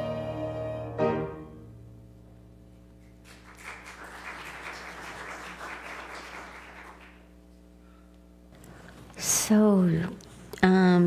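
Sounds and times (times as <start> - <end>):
congregation applauding: 3.2 - 7.3.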